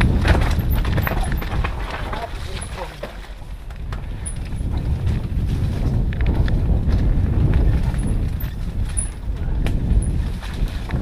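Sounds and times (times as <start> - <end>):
knocks from rocks and roots: 0.0 - 4.0
bike clattering: 0.0 - 11.0
bike tyres rumbling over ground: 0.0 - 11.0
wind buffeting microphone: 0.0 - 11.0.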